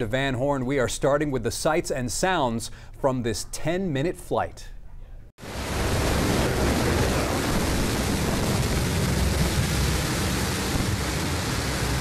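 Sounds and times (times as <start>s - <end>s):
rocket engine roaring: 5.4s - 12.0s.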